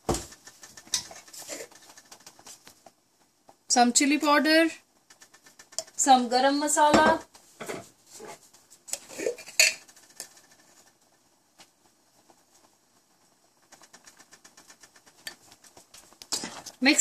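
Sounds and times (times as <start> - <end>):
knocks and clatter in kitchen: 0.0 - 17.0
rapid faint ticks: 0.3 - 3.7, 4.9 - 6.3, 9.8 - 16.8.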